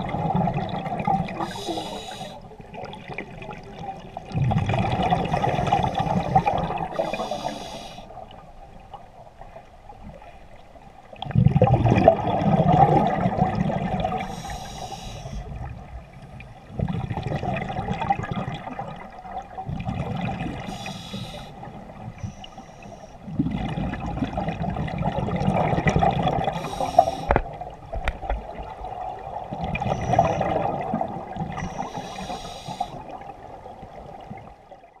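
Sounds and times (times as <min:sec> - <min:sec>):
exhaled bubbles rushing: 0:00.0 - 0:02.1, 0:02.7 - 0:07.3, 0:11.2 - 0:14.4, 0:16.7 - 0:20.8, 0:23.3 - 0:32.4
regulator hissing inhale: 0:01.4 - 0:02.5, 0:06.3 - 0:08.2, 0:14.2 - 0:15.5, 0:20.7 - 0:21.6, 0:22.2 - 0:23.2, 0:26.6 - 0:27.4, 0:31.6 - 0:33.1.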